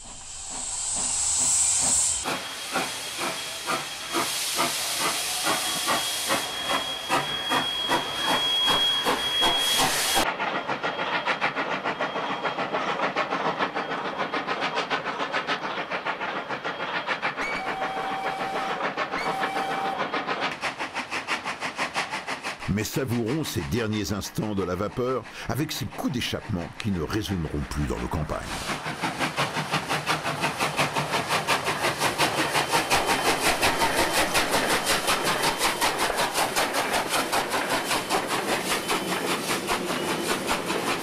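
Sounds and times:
steam hissing: 0.0s - 41.0s
steam locomotive exhaust beats: 0.0s - 41.0s
steam whistle: 4.3s - 10.2s, 17.4s - 20.1s.

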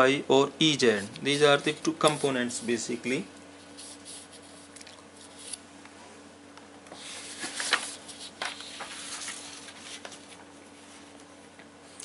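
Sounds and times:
paper rustling: 7.0s - 11.1s.

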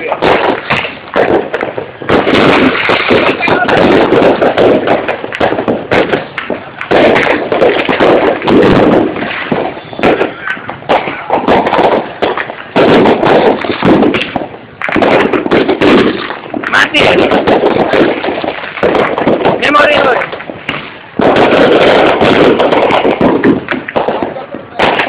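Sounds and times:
fireworks bangs and crackles: 0.0s - 25.0s.

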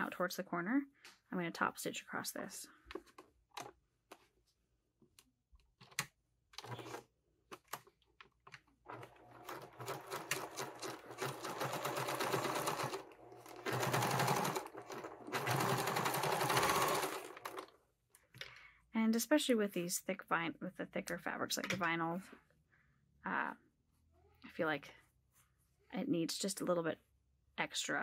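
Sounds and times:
sewing machine stitching: 6.6s - 7.1s, 8.8s - 17.8s.

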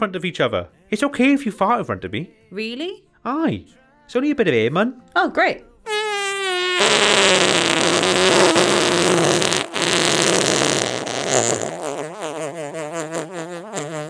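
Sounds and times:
cartoon fart sound effect: 5.9s - 14.0s.

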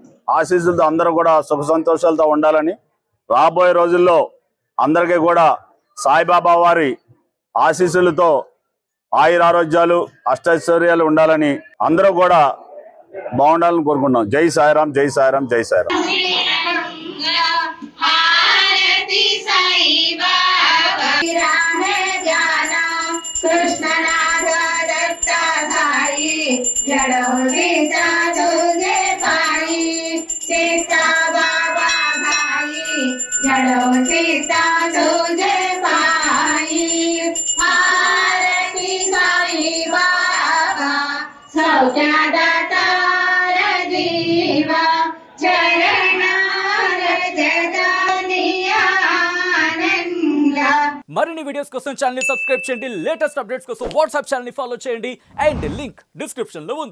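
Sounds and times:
group singing a hymn in unison: 15.9s - 22.8s, 23.5s - 29.9s, 30.5s - 36.4s, 37.7s - 50.2s.

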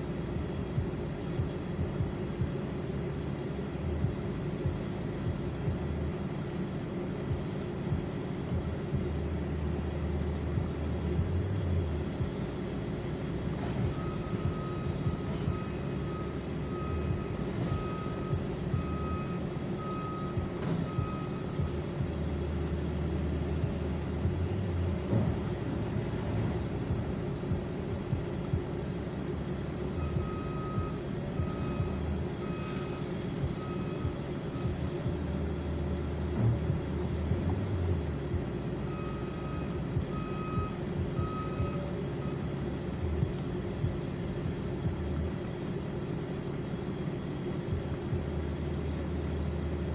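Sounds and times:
engines humming: 0.0s - 49.9s
backup alarm beeping: 13.1s - 28.8s, 29.5s - 45.2s.

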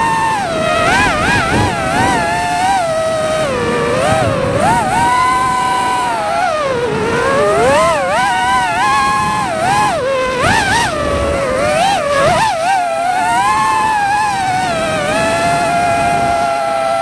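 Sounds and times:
drone propellers whining: 0.0s - 17.0s.

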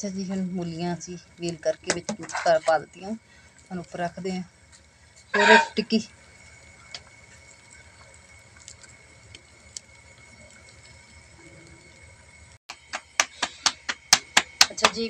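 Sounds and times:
hands patting dough: 12.7s - 15.0s.

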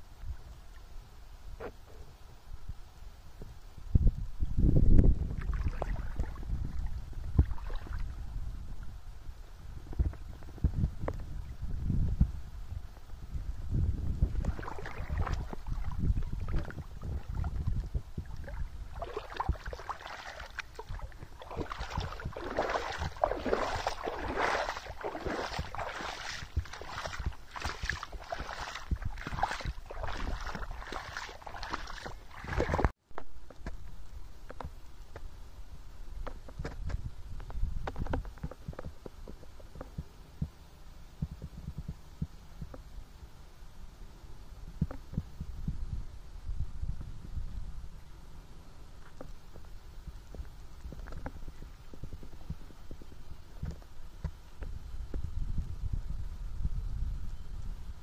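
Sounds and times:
wind rumbling on microphone: 0.0s - 58.0s
water flowing and splashing: 5.1s - 8.9s, 14.1s - 33.5s.

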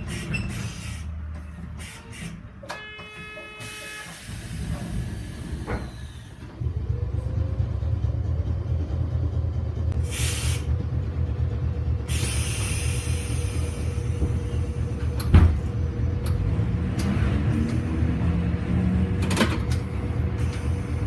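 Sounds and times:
streetcar click: 0.0s - 7.0s, 10.7s - 21.0s
streetcar running gear rumble: 0.0s - 21.0s
air hiss: 10.0s - 10.7s, 12.1s - 14.5s.

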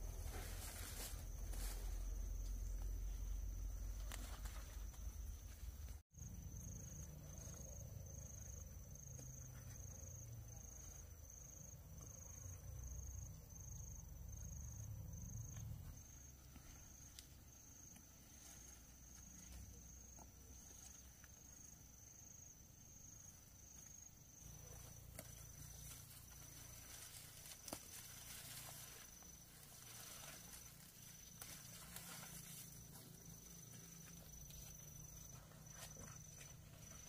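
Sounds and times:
faint insect chirping: 0.0s - 37.0s
leafy stems rustling and snapping: 3.9s - 5.2s, 25.1s - 33.0s.

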